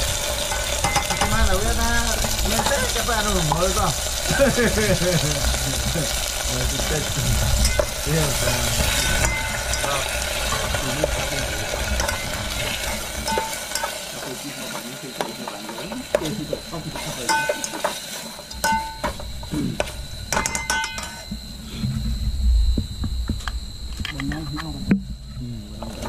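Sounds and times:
food sizzling in pot: 0.0 - 21.8
spoon clinking against pot: 0.5 - 1.4, 7.6 - 8.0, 9.2 - 10.7, 13.2 - 14.0, 17.0 - 19.2, 19.8 - 21.3
spoon stirring: 7.6 - 19.1.

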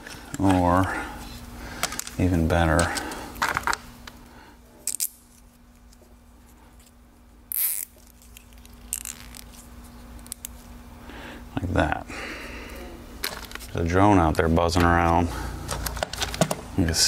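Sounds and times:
zip tie rasping: 7.5 - 9.6.

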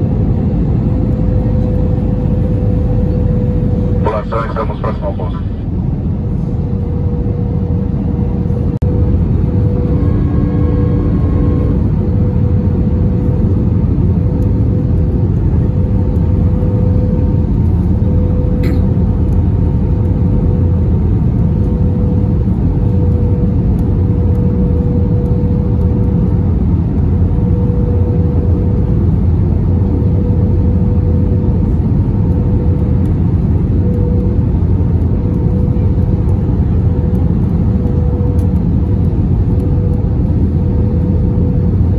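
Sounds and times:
airplane cabin engine rush: 0.0 - 41.9
steady hum: 0.0 - 41.9.

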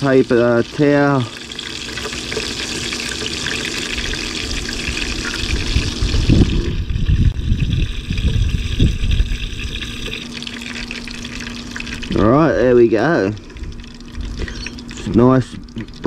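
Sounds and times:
oil sizzling in a pan: 0.0 - 12.1
low rumbling thumps: 5.0 - 9.6.

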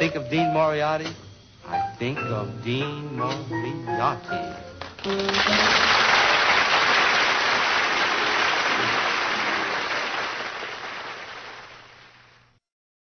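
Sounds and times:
audience applauding: 4.8 - 12.4.

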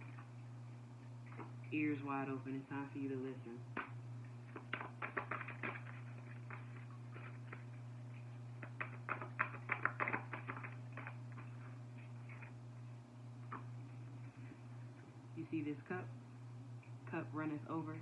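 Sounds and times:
steady low hum: 0.0 - 18.0
cards clicking and flicking: 4.5 - 7.7, 8.6 - 11.2.

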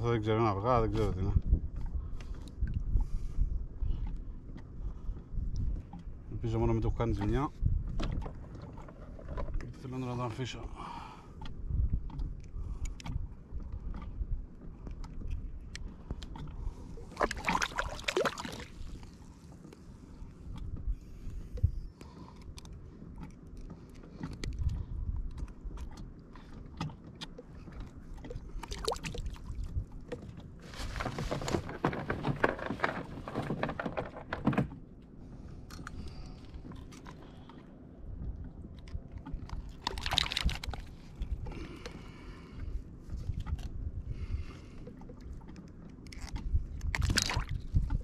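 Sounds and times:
water splashing: 16.7 - 19.4, 27.4 - 29.7, 38.9 - 41.8, 46.1 - 48.0
knocks and clicks on kayak hull: 30.9 - 34.8.

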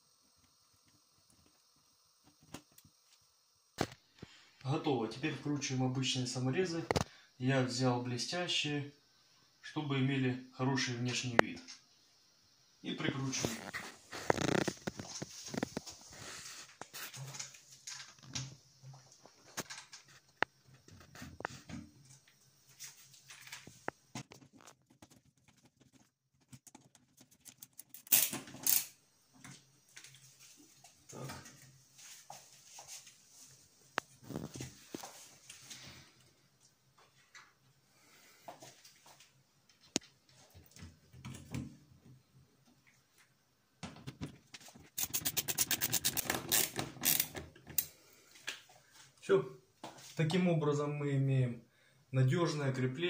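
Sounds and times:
screwdriver driving screw into metal: 45.0 - 47.4.

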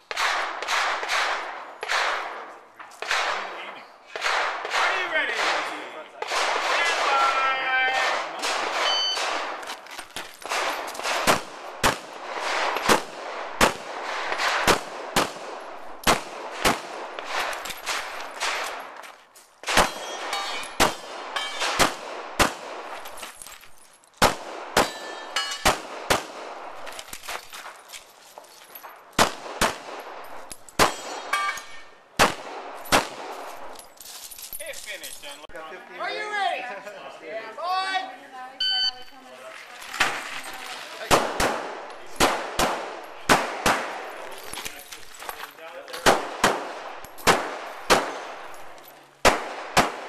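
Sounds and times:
shot timer beep: 8.8 - 9.3, 38.6 - 39.1
handgun shots: 10.4 - 18.8, 19.6 - 22.8, 30.8 - 33.5, 46.0 - 48.5.

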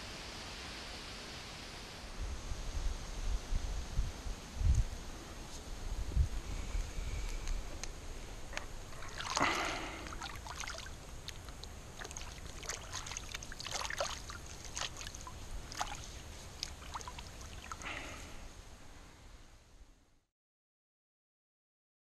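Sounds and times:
water lapping at shoreline: 8.4 - 18.4
small splashes and drips: 8.5 - 18.2
large splash: 8.9 - 11.0, 12.0 - 16.0, 16.6 - 18.0.

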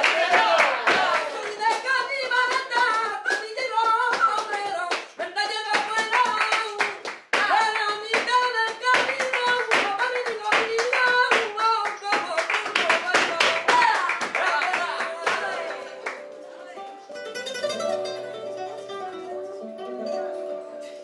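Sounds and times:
rhythmic hand-clapping: 0.0 - 16.6
flamenco singing: 0.0 - 21.0.

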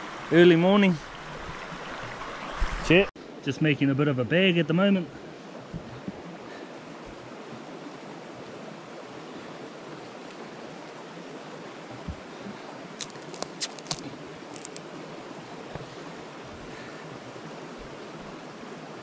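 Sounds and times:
sharp clicks of leg joint: 13.0 - 14.8.

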